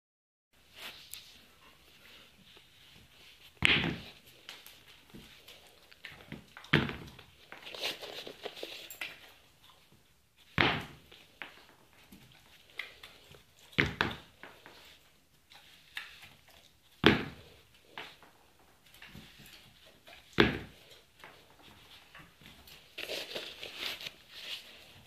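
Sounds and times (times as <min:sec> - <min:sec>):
shoe tapping on tile floor: 0:03.6 - 0:04.2.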